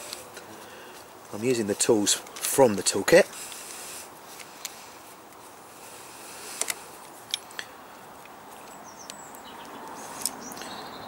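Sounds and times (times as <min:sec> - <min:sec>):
outdoor hiss: 0:00.0 - 0:11.0.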